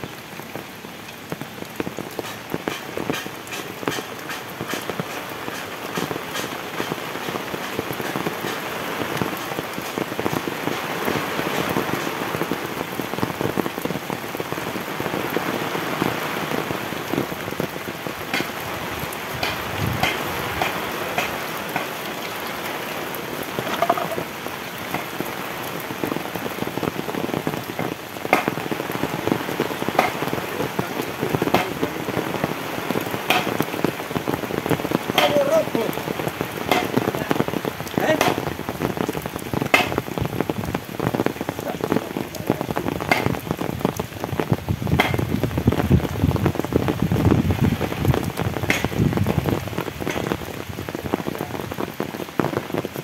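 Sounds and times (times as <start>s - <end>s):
heavy rain falling: 0.0s - 53.0s
large raindrops ticking: 0.0s - 53.0s.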